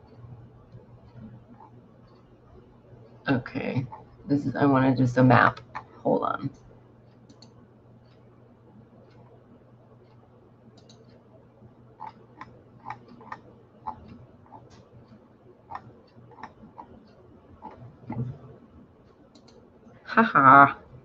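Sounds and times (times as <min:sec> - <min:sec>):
low steady hum: 0:00.0 - 0:21.0
computer keyboard typing: 0:10.8 - 0:11.2, 0:12.0 - 0:18.6.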